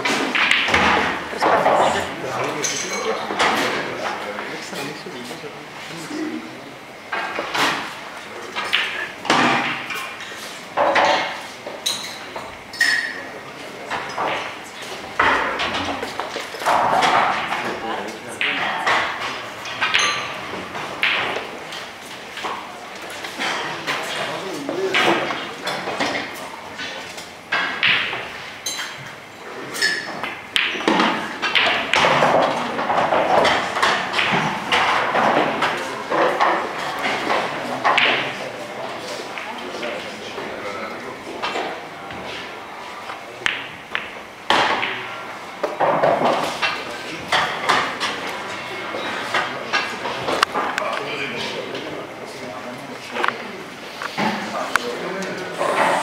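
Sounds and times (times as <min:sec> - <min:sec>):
pool balls knocking and clacking: 0:00.0 - 0:04.9, 0:07.0 - 0:56.0
cue striking ball: 0:29.9 - 0:38.4, 0:43.4 - 0:48.2.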